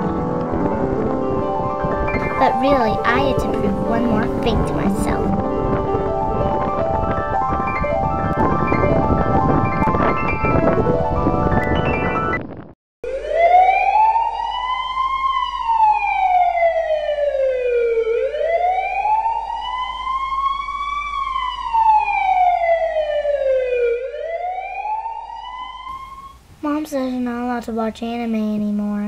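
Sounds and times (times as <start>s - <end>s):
siren wailing: 13.0s - 26.4s.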